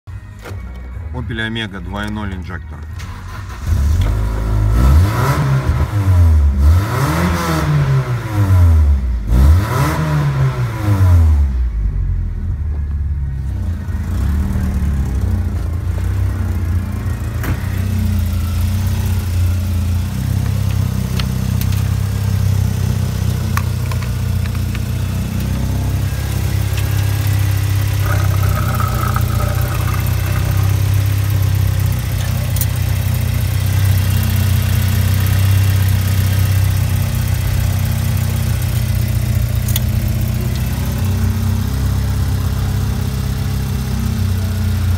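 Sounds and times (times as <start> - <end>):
car engine idling: 12.8 - 44.9.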